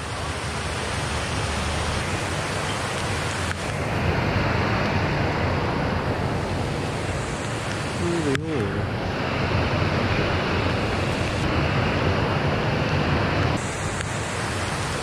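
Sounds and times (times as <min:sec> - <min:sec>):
stream rushing over a weir: 0:00.0 - 0:15.0.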